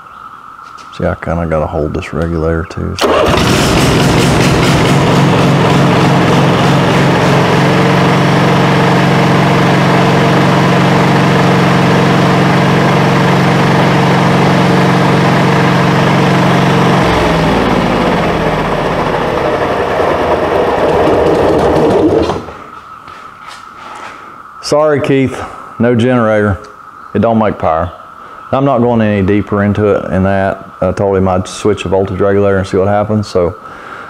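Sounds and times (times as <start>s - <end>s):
generator engine running: 3.0s - 22.8s.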